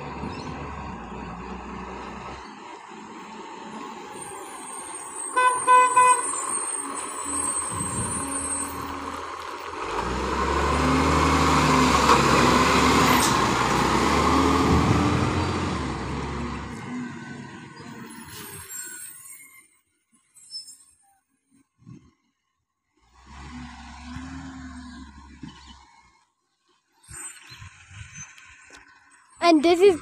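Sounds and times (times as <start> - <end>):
garbage truck diesel engine: 0.0 - 19.2, 23.0 - 25.8.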